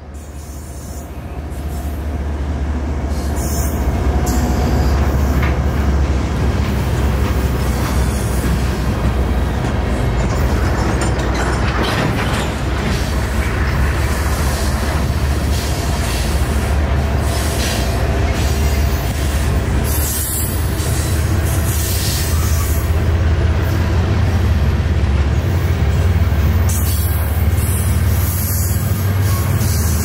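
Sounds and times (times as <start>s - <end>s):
train wheels rumbling on rails: 0.0s - 30.0s.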